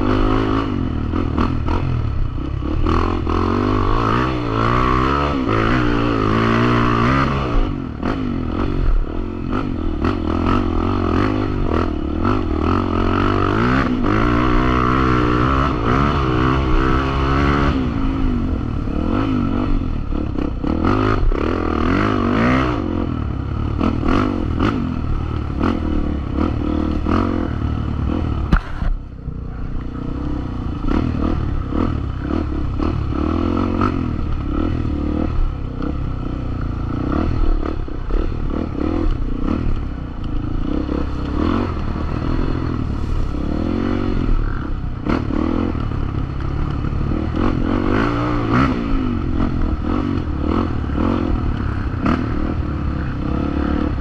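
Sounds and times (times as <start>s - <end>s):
motorcycle engine revving: 0.0s - 54.0s
sharp knock: 28.5s - 29.0s.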